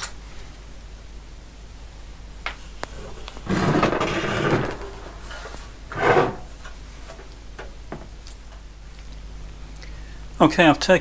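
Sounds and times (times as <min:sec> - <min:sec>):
metal panel scraping on bench: 0:03.0 - 0:06.6.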